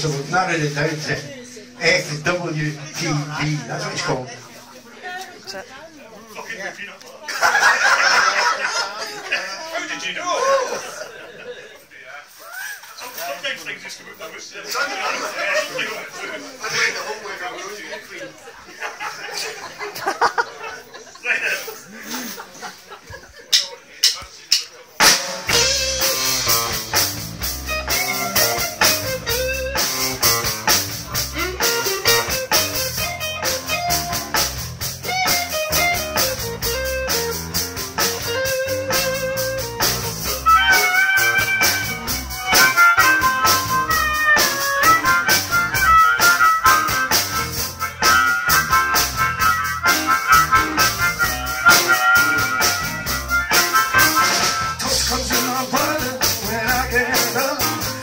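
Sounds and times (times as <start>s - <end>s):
blues band playing: 0.0s - 5.8s, 21.6s - 58.0s
harmonica wailing: 27.6s - 30.5s, 31.3s - 34.3s, 38.2s - 54.8s.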